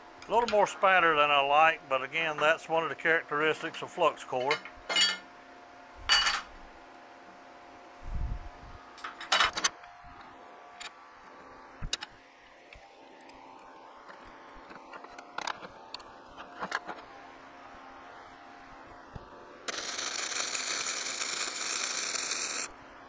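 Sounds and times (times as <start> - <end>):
steady hum: 0.0 - 23.0
metal tools clanking on steel table: 3.4 - 5.3, 6.1 - 6.5, 9.0 - 9.7.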